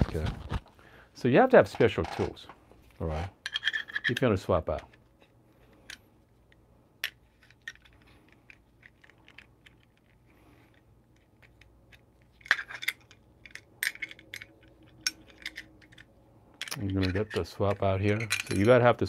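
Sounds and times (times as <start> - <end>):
small metal tools clinking: 11.4 - 18.9.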